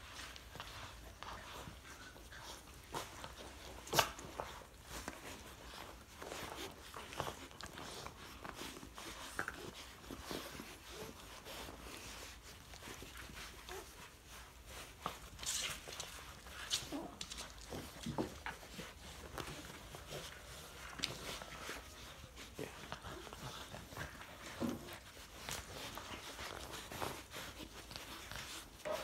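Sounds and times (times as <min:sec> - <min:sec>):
puppies chewing: 0:00.0 - 0:29.0
rustling: 0:00.0 - 0:29.0.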